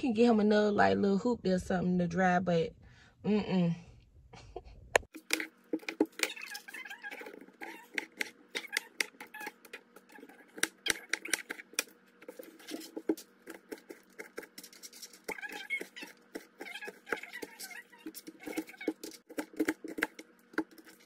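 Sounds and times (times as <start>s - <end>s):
knife chopping on cutting board: 7.6s - 21.0s.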